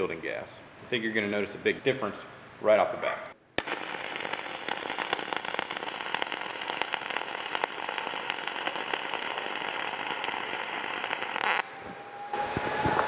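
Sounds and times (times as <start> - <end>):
crackling welding arc with pops: 3.6 - 11.7.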